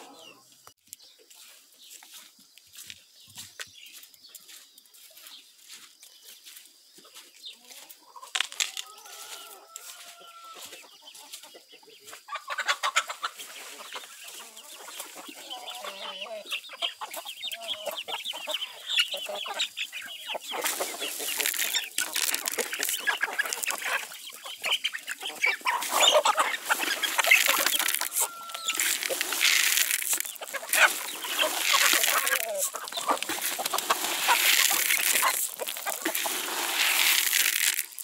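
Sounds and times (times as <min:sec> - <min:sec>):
chickens clucking: 0:00.0 - 0:38.0
chicken long drawn-out call: 0:08.6 - 0:11.3, 0:15.4 - 0:16.5, 0:25.6 - 0:35.4.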